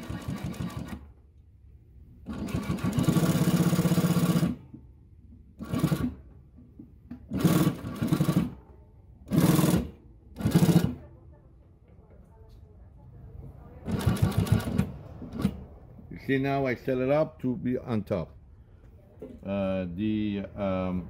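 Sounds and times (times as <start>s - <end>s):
industrial sewing machine stitching: 0.0s - 1.1s, 2.2s - 4.6s, 5.6s - 6.2s, 7.3s - 8.6s, 9.3s - 11.0s, 13.8s - 15.7s.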